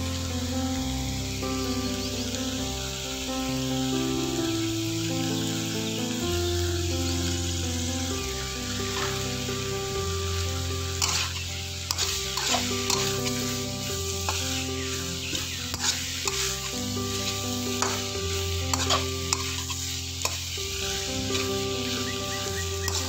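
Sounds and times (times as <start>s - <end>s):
vegetables sizzling in a wok: 0.0s - 23.0s
metal spatula scraping a wok: 8.9s - 9.2s, 10.3s - 23.0s.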